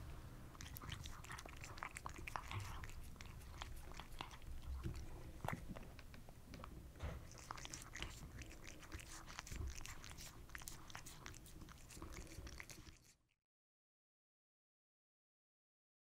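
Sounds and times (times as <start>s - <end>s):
cat crunching food: 0.5s - 13.3s.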